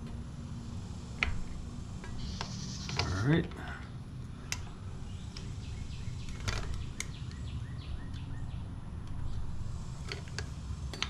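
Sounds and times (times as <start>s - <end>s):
steady low hum: 0.0s - 11.0s
bird chirps: 2.1s - 3.2s, 5.0s - 8.7s.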